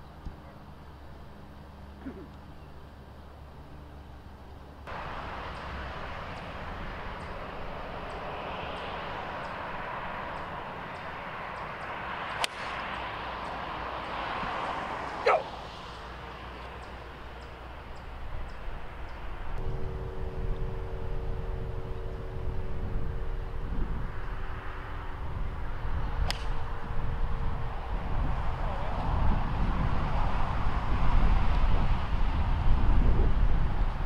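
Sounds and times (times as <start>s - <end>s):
outdoor background noise: 0.0s - 34.0s
golf club striking ball: 10.3s - 14.1s, 26.2s - 26.7s.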